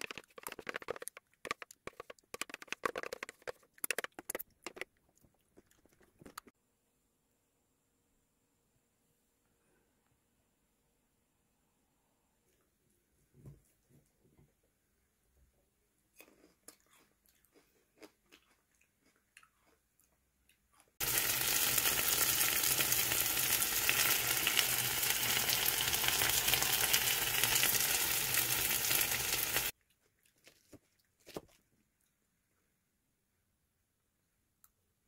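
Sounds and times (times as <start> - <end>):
faint clicks and taps: 0.0 - 6.6
food sizzling in a pan: 21.0 - 29.8.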